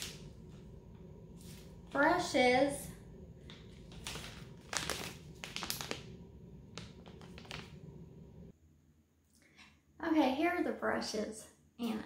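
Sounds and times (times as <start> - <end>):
plastic sleeve crinkling: 3.4 - 8.0.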